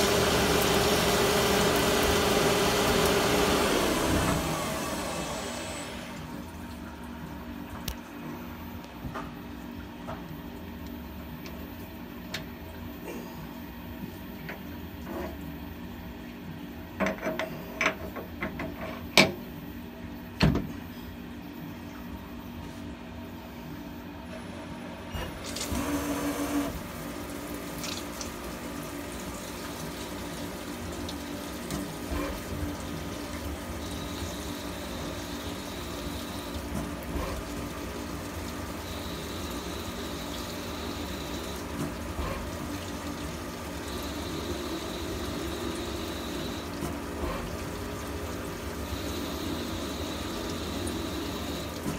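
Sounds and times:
coolant splashing: 0.0s - 7.1s, 25.4s - 51.9s.

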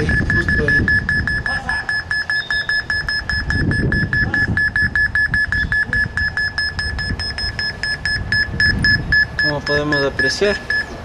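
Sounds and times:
rapid high-pitched phone beeps: 0.0s - 11.0s.

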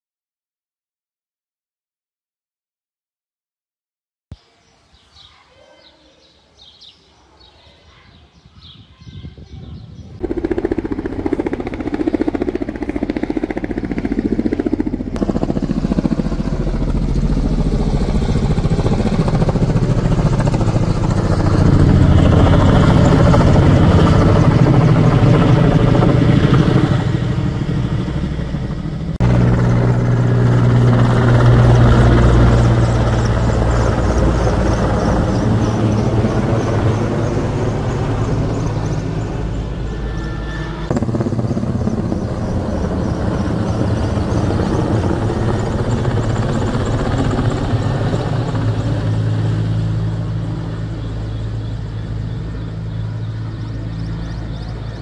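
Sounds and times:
helicopter rotor and engine: 10.1s - 55.0s.

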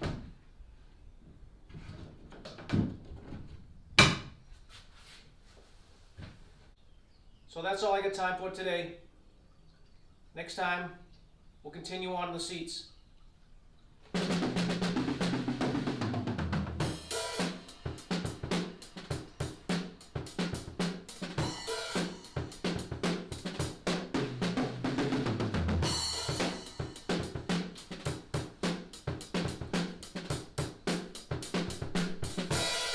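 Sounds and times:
bass line: 14.2s - 18.6s, 19.2s - 30.1s
fast drum kit beat: 14.2s - 32.9s.

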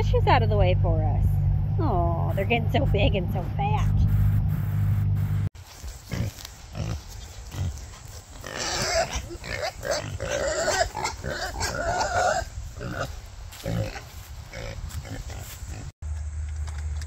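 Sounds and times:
pigs grunting: 6.0s - 15.9s
pigs squealing: 6.0s - 15.9s.

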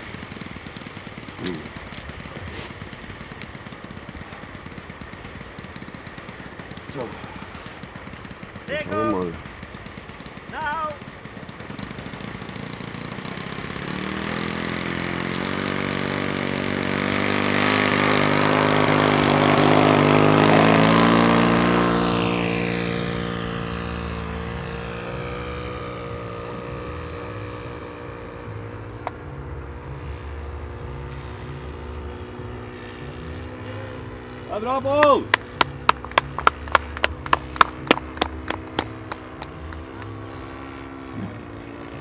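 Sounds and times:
model aircraft engine and propeller: 0.0s - 42.0s.

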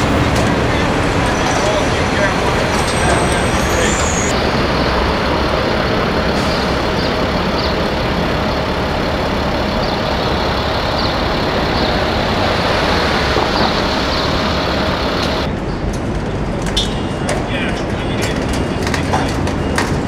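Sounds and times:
truck engine rumbling: 0.0s - 20.0s
thin steady whine: 7.2s - 15.5s.

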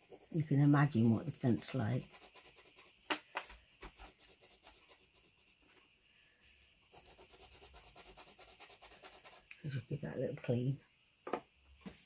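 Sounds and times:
tool scratching paint on paper: 0.0s - 3.2s, 3.8s - 5.8s, 6.9s - 9.6s.

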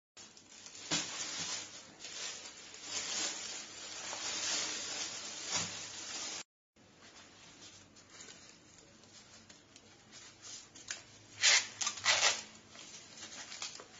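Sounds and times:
plastic bag crinkling: 0.2s - 13.9s.

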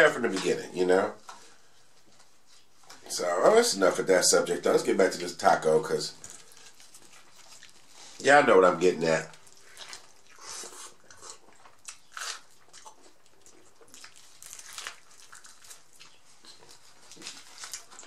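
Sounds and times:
quiet chewing: 6.2s - 8.2s, 9.3s - 18.0s
crunching taco shell: 9.4s - 18.0s.

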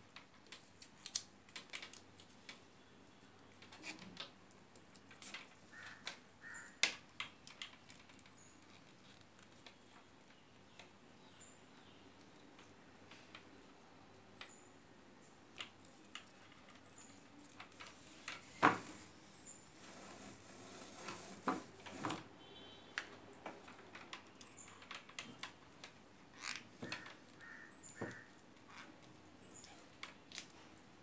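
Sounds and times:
tape rustling and clicking: 0.0s - 11.0s, 15.5s - 19.1s, 22.9s - 31.0s.

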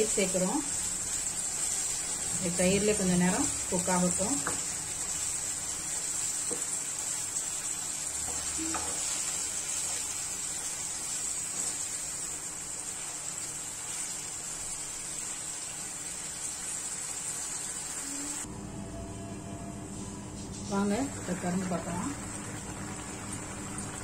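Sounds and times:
chicken sizzling in a pan: 0.0s - 18.4s.

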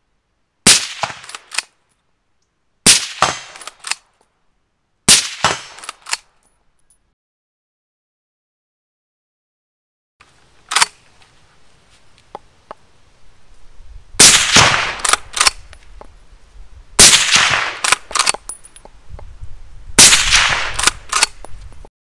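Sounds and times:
suppressed rifle shots: 0.6s - 1.7s, 2.8s - 4.0s, 5.1s - 6.2s, 14.2s - 15.6s, 17.0s - 18.4s, 20.0s - 21.4s
rifle bolt clicks: 1.0s - 1.7s, 3.2s - 4.0s, 5.4s - 6.3s, 10.7s - 11.0s, 15.0s - 15.8s, 17.4s - 18.7s, 20.1s - 21.6s.

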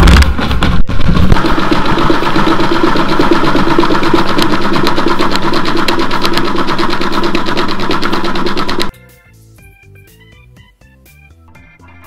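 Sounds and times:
washing machine drum spinning: 0.0s - 8.9s
rapid rattling clicks: 0.4s - 8.9s.

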